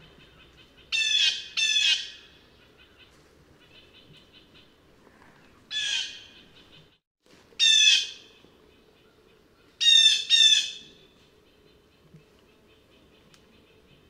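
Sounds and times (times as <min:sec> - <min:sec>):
blue jay calling: 0:00.2 - 0:04.7, 0:09.8 - 0:10.9.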